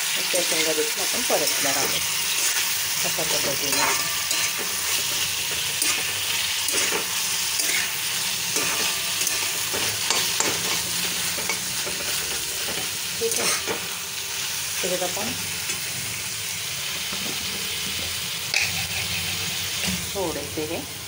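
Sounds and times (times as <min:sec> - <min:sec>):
food sizzling in oil: 0:00.0 - 0:21.0
steel spatula scraping pan: 0:00.6 - 0:13.8, 0:18.5 - 0:20.0.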